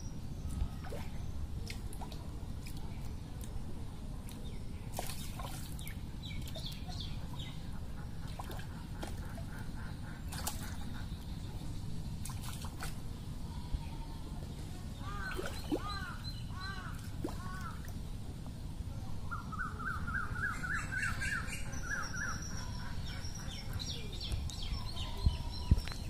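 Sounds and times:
steady low rumble: 0.0s - 26.0s
bird calls: 4.4s - 12.9s, 15.0s - 18.0s, 19.2s - 26.0s.

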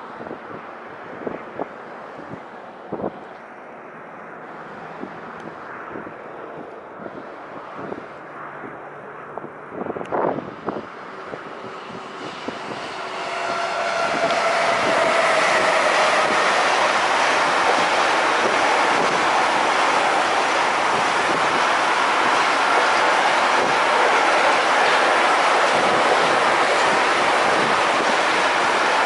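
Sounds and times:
train wheels running on rails: 10.7s - 29.0s.

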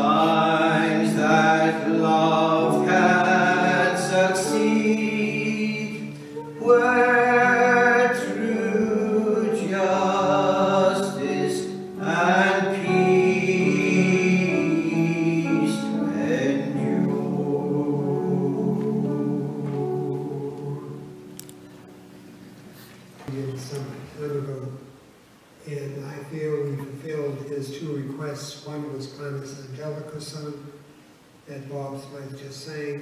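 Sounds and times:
sustained instrumental chords: 0.0s - 23.2s
hymn singing: 0.0s - 25.0s.

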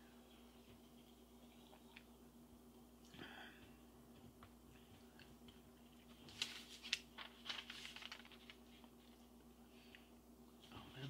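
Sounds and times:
faint steady hum: 0.0s - 11.0s
magazine pages rustling: 6.0s - 9.3s.

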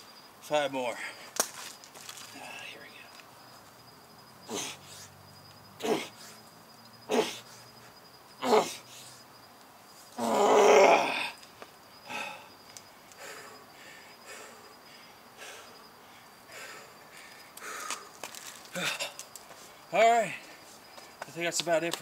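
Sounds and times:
man grunting and breathing: 4.5s - 5.0s, 5.8s - 6.2s
man groaning: 5.8s - 6.1s, 8.4s - 8.8s, 10.2s - 11.4s.

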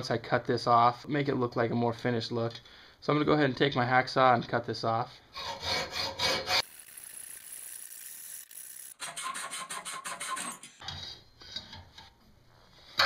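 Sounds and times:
hacksaw rasping on metal: 5.4s - 6.6s, 8.9s - 10.8s.

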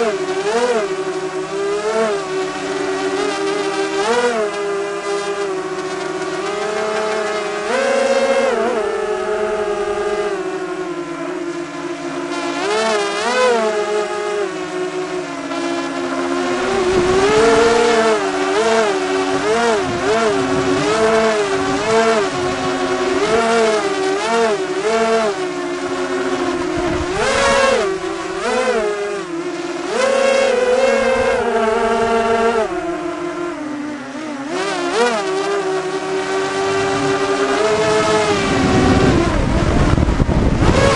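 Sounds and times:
drone propellers whirring: 0.0s - 40.9s.

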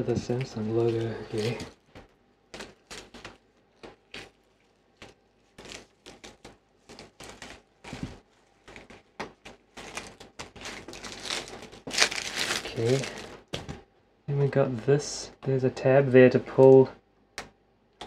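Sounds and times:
plastic film peeling crackles: 0.0s - 13.7s.

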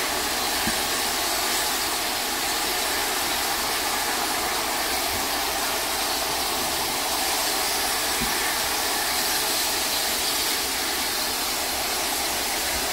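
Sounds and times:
steam locomotive safety valves hissing: 0.0s - 12.9s.

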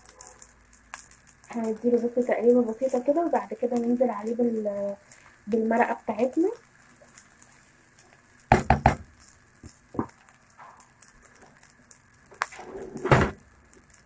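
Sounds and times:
spoon knocking against pan: 8.5s - 9.1s.

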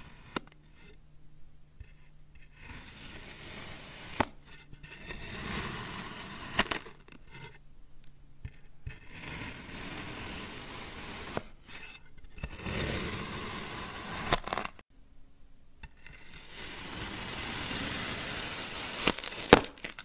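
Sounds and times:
knife scraping through sand: 1.8s - 7.6s, 8.9s - 14.7s, 15.9s - 20.0s.

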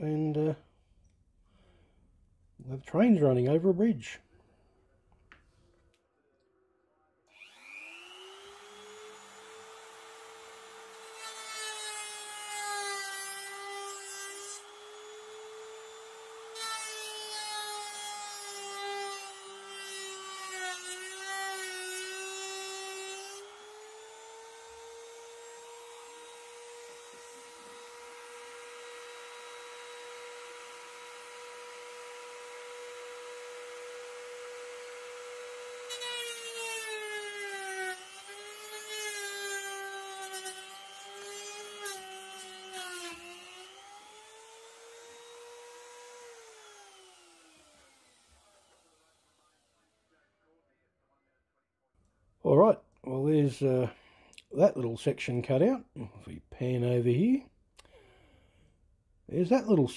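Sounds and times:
rotary tool high whine: 7.3s - 11.9s, 27.2s - 50.0s.

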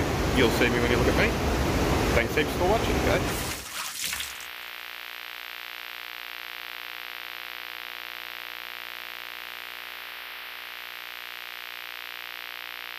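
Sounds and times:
electronic hiss: 3.0s - 12.9s.

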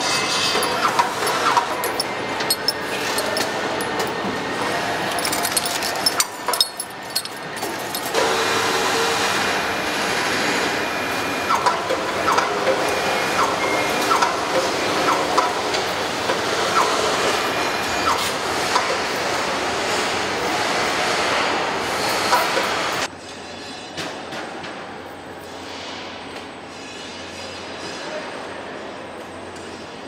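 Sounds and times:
tools and metal parts clinking: 0.0s - 8.2s.

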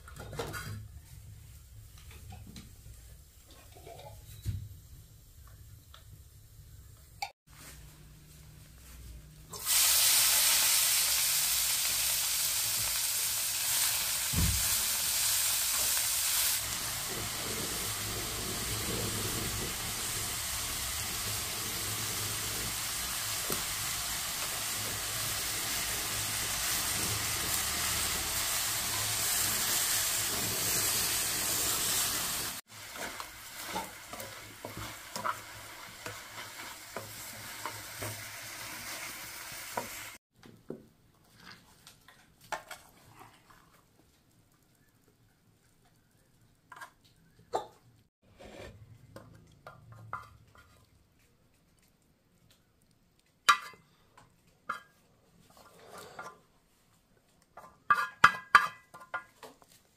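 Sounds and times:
food sizzling in oil: 9.5s - 40.2s.

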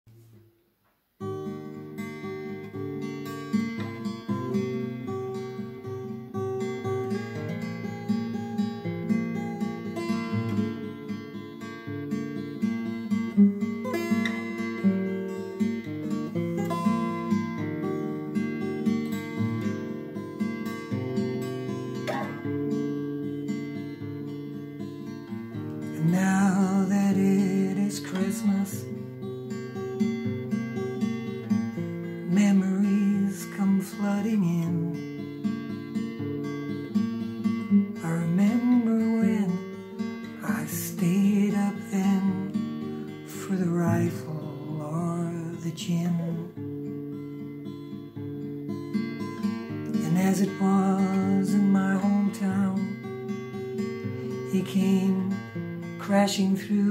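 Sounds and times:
acoustic guitar strumming chords: 0.1s - 56.9s
person singing: 25.9s - 29.0s, 32.2s - 35.0s, 38.0s - 42.7s, 43.3s - 46.6s, 50.0s - 53.1s, 54.5s - 56.9s.

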